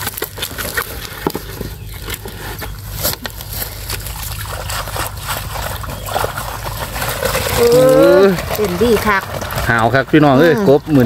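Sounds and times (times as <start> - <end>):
steady low rumble: 0.0 - 7.6
water sloshing and trickling: 0.0 - 11.0.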